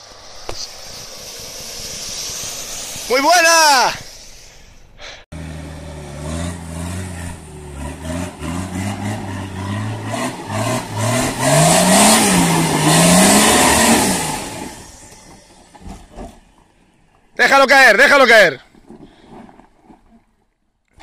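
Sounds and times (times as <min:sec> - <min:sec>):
spinning tyres hissing: 0:00.0 - 0:17.3
off-road engine revving: 0:05.3 - 0:16.4.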